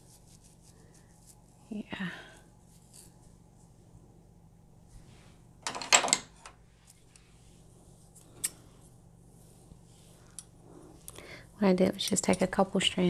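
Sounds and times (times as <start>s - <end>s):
wig hair rustling: 0.0s - 1.8s, 2.5s - 3.8s.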